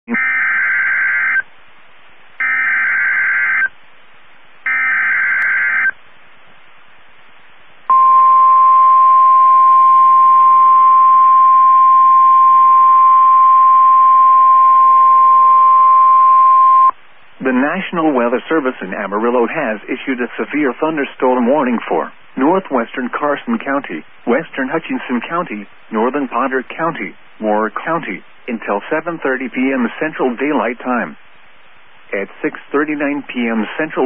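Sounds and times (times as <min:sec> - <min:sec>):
steady warning alarm tone: 0:00.1 - 0:01.4, 0:02.4 - 0:03.7, 0:04.7 - 0:06.0, 0:07.9 - 0:16.9.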